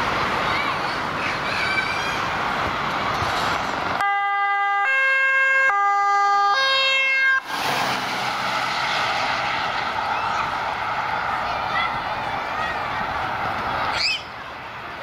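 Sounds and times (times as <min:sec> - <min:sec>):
ambulance two-tone siren: 0:04.0 - 0:07.4
van driving past: 0:07.2 - 0:14.0.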